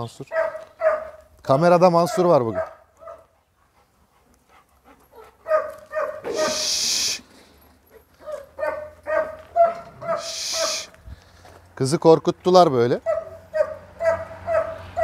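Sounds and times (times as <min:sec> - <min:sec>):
dogs barking and whining: 0:00.3 - 0:01.3, 0:02.0 - 0:03.8, 0:04.7 - 0:11.0, 0:13.0 - 0:15.0
hissing bursts: 0:06.3 - 0:07.2, 0:10.2 - 0:10.9.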